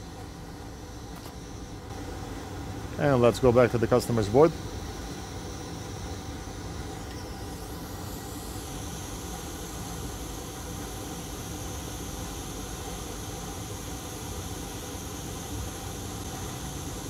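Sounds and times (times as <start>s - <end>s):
hot air station blowing: 0.0s - 17.0s.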